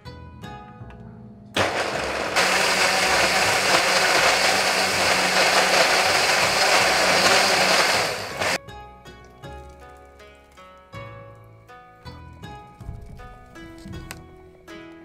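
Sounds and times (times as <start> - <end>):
blender motor running: 1.6 - 8.6.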